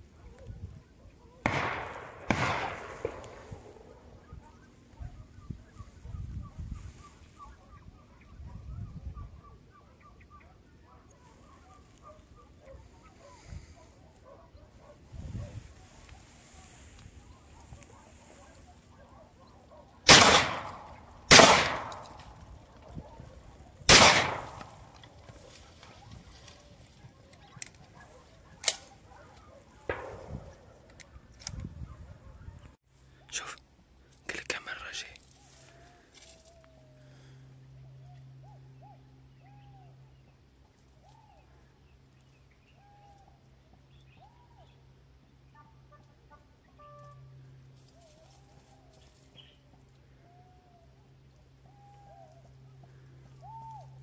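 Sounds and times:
gunshots with echo: 1.4 - 4.1, 20.0 - 22.4, 23.9 - 25.0, 29.8 - 30.8
faint bird calls: 2.7 - 20.0, 21.8 - 54.0.

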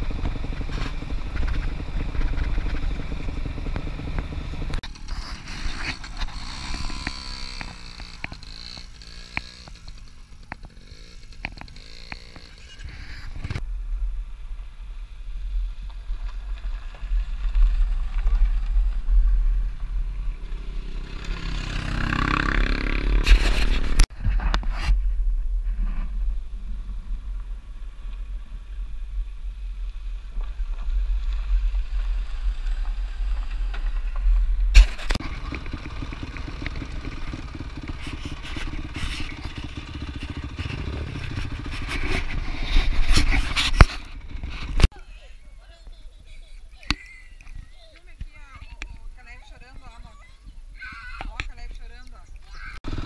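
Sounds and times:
dirt bike engines revving: 0.0 - 13.6, 16.0 - 24.1, 29.6 - 53.0
wind rumble on microphone: 23.2 - 35.2.

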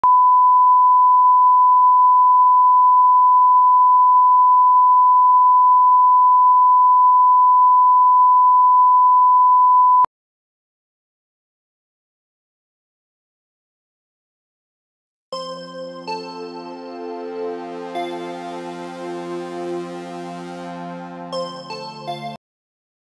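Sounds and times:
sine-wave test tone: 0.0 - 10.1.

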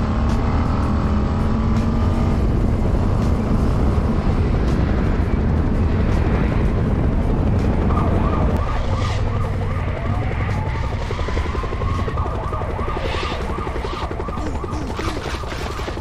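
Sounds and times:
motorcycle engine rumble: 0.0 - 16.0
wind noise: 2.3 - 9.5.

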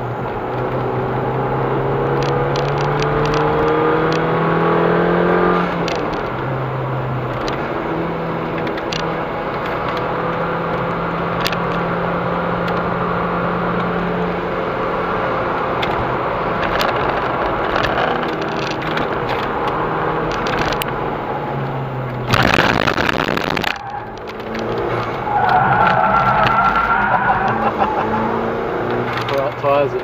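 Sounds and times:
road and tyre noise: 0.0 - 30.0
car engine running: 14.2 - 30.0
loud harsh noise: 22.3 - 24.1.

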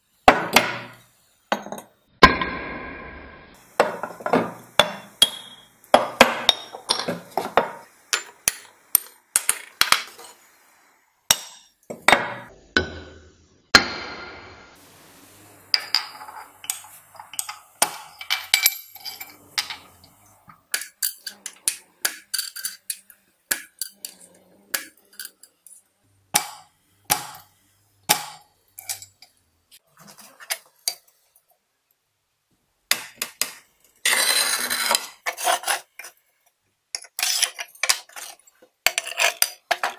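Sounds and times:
glass cutter scraping hiss: 10.0 - 10.9.

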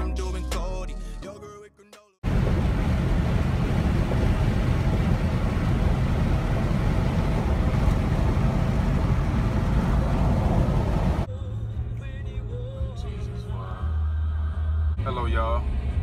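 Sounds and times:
car road and wind noise: 2.2 - 11.3.

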